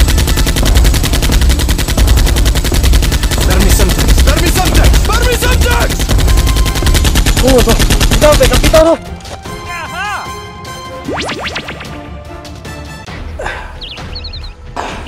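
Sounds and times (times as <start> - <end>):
machine-gun fire: 0.0 - 9.0.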